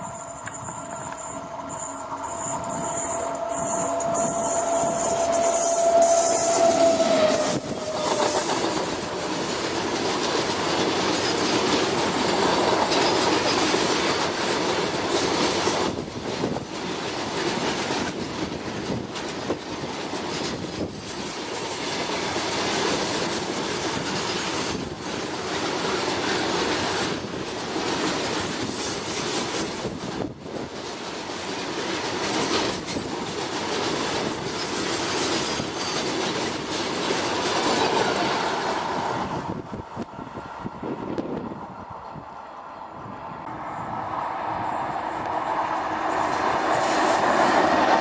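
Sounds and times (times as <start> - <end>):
locomotive tone dropping in pitch: 0.0 - 9.4
train wheels on rails: 0.0 - 48.0.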